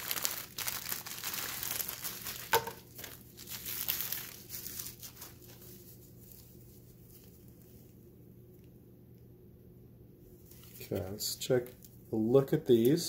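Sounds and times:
plastic bag and bubble wrap crinkling: 0.0 - 8.0.

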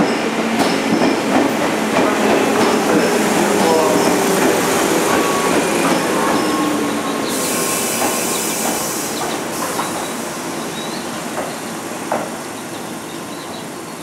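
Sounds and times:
train wheels rumbling on rails: 0.0 - 14.0
high hiss: 4.6 - 10.8.

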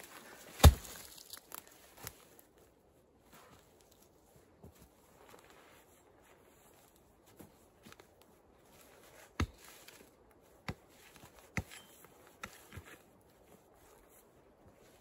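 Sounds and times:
axe chopping wood: 0.5 - 1.2, 9.2 - 9.7.

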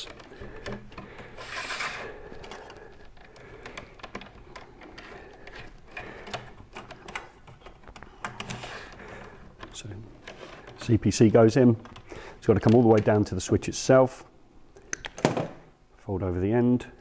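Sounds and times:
cable rubbing through conduit: 0.0 - 3.1.

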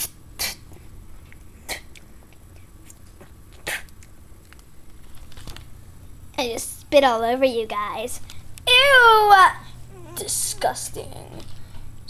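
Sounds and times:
child making spitting noises: 0.0 - 0.6.

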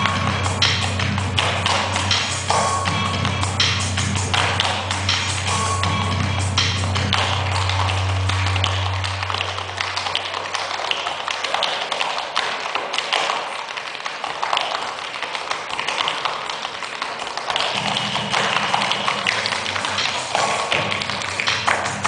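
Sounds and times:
low steady musical note: 0.0 - 10.8.

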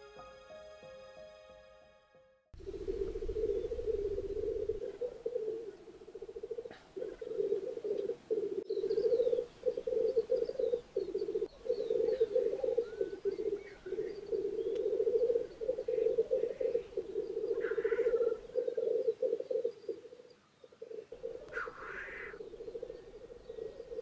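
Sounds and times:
grouse bubbling coo: 2.6 - 24.0
higher rasping bird call: 21.4 - 22.6.

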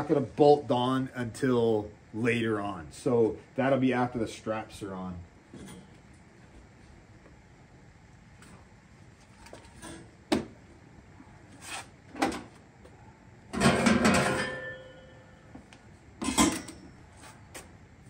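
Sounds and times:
metal tank clunking: 13.5 - 15.1.

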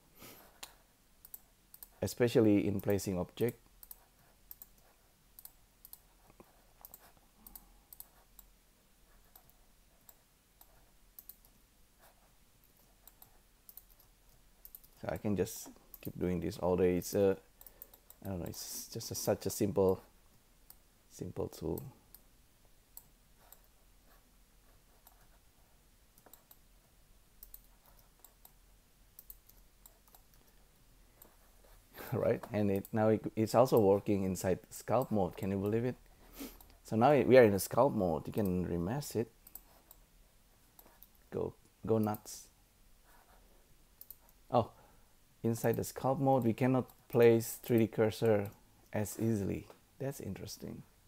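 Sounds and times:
computer mouse clicking: 0.4 - 2.0, 2.6 - 8.5, 9.2 - 11.6, 12.6 - 16.2, 17.6 - 18.6, 23.0 - 23.8, 26.1 - 26.6, 27.4 - 28.6, 29.2 - 30.6, 34.9 - 35.6, 39.4 - 40.0, 40.7 - 41.3, 44.0 - 44.4.

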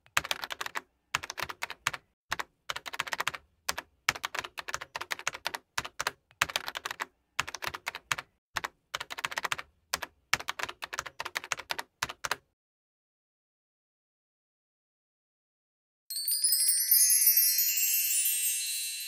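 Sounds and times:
keyboard typing: 0.0 - 12.5.

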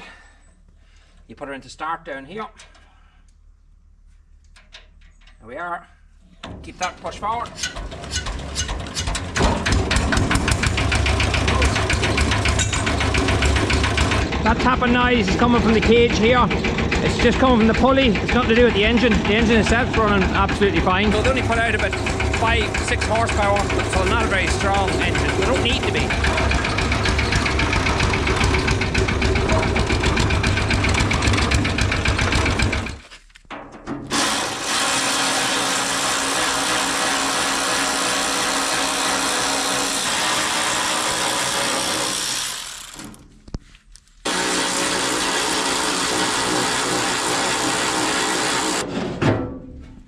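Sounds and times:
small diesel engine running: 7.8 - 33.0, 34.1 - 43.2, 44.3 - 48.8.

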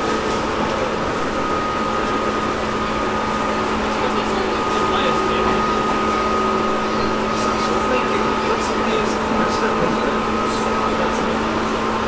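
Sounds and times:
air conditioning running: 0.0 - 12.0
train running gear rumble: 0.0 - 12.0.

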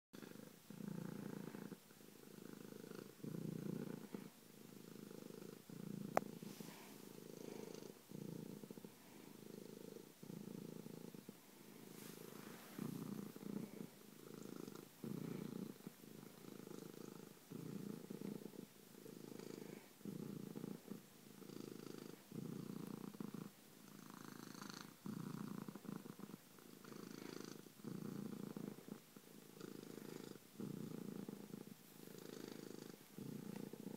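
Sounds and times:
cat purring: 0.2 - 33.9.

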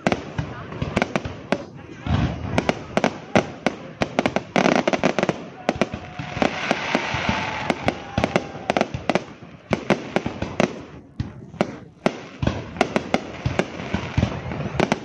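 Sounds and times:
fireworks crackling hiss: 0.0 - 15.0.

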